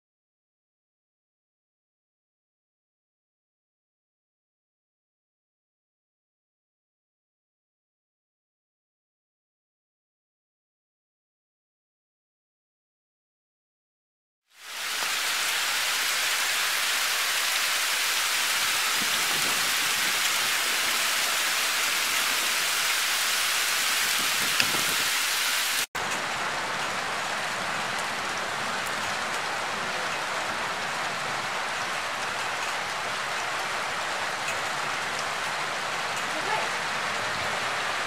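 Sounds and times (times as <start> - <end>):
heavy rain pouring: 14.5 - 38.0.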